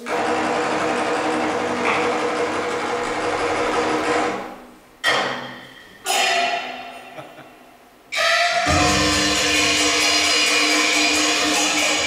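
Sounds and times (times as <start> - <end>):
stage percussion roll: 0.0 - 7.2, 8.1 - 12.0
ringing percussion strikes: 8.1 - 12.0.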